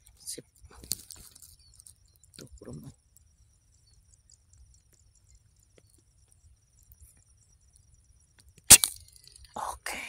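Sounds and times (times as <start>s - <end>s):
high-pitched insect chirping: 0.0s - 10.0s.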